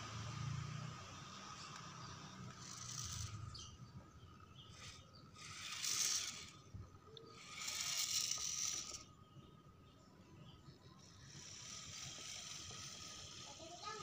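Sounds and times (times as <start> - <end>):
electric motor whirring: 1.3 - 4.0, 4.6 - 9.2, 11.0 - 14.0.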